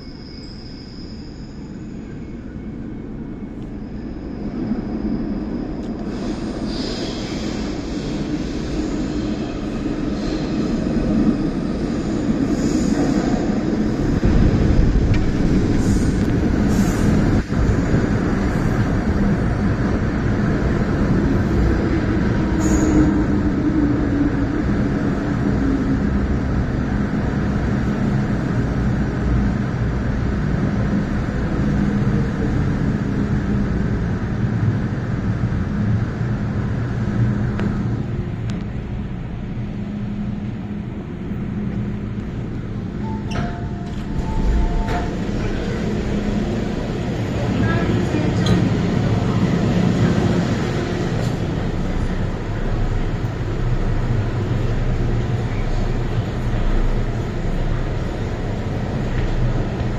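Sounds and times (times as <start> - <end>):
train braking whine: 0.0 - 10.7, 22.4 - 23.6
train wheels rumbling on rails: 0.0 - 59.9.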